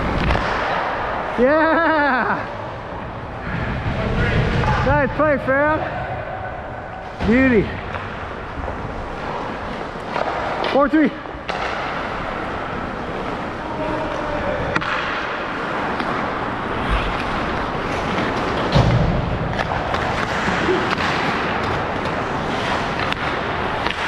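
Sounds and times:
clicks of sticks and puck: 0:00.1 - 0:01.0, 0:10.0 - 0:10.8, 0:11.4 - 0:12.1, 0:14.7 - 0:16.3, 0:16.9 - 0:24.0.

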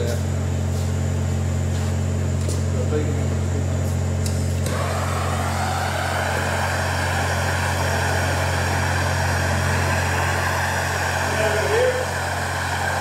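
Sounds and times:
gas torch hissing: 0:03.8 - 0:13.0
gas torch lighting click: 0:04.2 - 0:04.9
low hum: 0:04.5 - 0:13.0.

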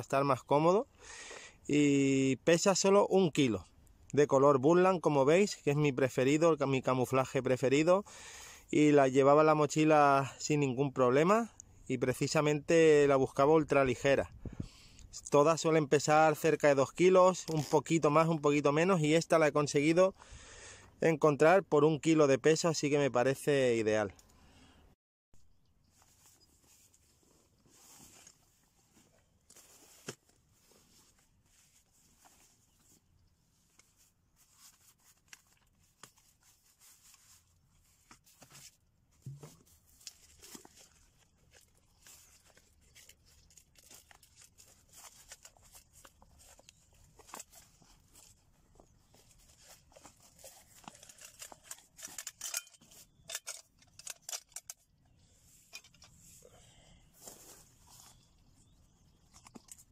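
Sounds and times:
backpack fabric rustling: 0:26.0 - 0:52.1, 0:57.2 - 0:58.3.

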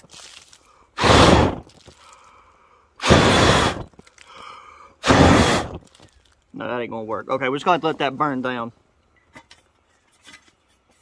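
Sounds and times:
hard puffs of breath: 0:00.5 - 0:05.9.

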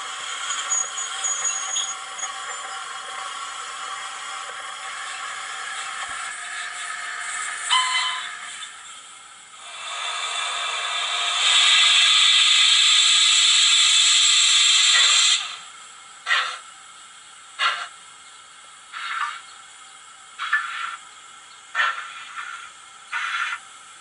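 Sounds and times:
model locomotive steam hiss: 0:00.0 - 0:16.7, 0:17.4 - 0:24.0
steam exhaust chuffs: 0:00.0 - 0:16.8.

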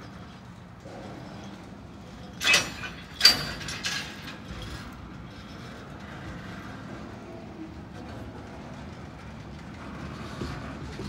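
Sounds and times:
freight train rumbling: 0:00.0 - 0:11.0
sharp metallic clanks: 0:02.3 - 0:04.5.

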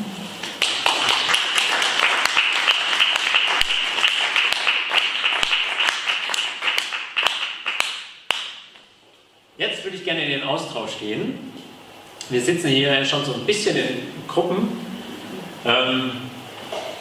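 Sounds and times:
audience applauding: 0:00.4 - 0:08.6.

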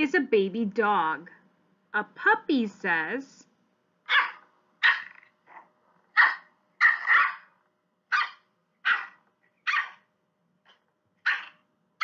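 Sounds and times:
puppy yapping: 0:04.0 - 0:11.6.

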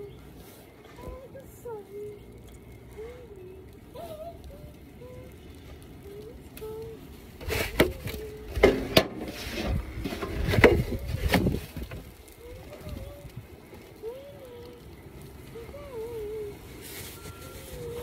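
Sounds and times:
crunching and scraping in snow: 0:00.0 - 0:18.0.

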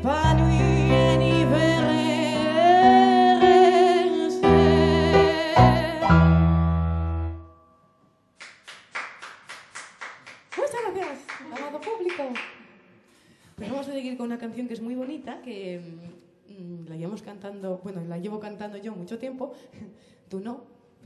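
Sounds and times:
woman singing with vibrato: 0:00.0 - 0:06.5
piano chords: 0:00.0 - 0:07.8
people clapping: 0:08.4 - 0:12.8.

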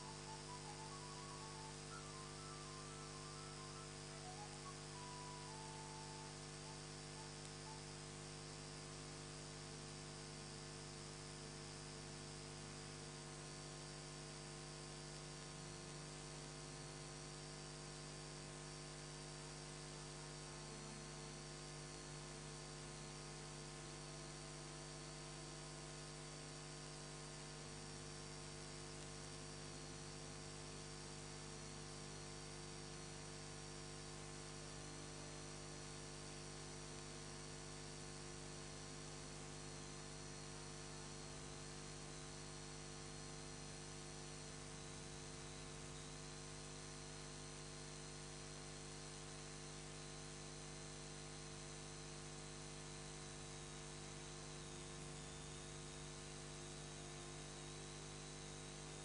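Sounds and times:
background hiss: 0:00.0 - 0:07.9
electrical mains hum: 0:00.0 - 0:10.6, 0:13.2 - 0:42.2
faint wavering high whine: 0:00.0 - 0:30.4, 0:31.4 - 0:59.0.

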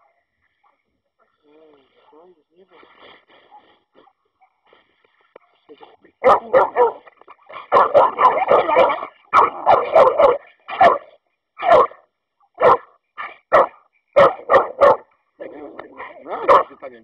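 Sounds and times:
dogs barking: 0:03.4 - 0:16.8.

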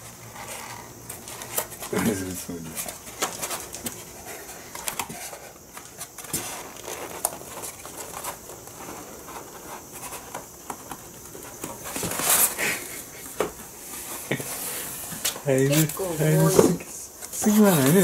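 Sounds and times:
cardboard rustle: 0:00.0 - 0:18.0.

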